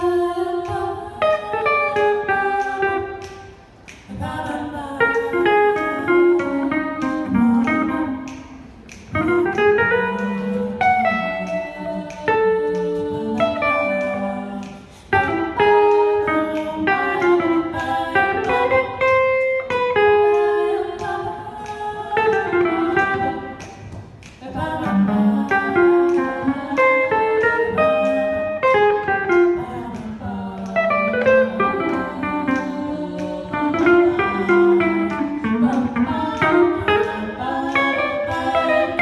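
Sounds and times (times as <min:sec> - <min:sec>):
guitar: 0:00.0 - 0:39.0
women singing in harmony: 0:00.0 - 0:39.0.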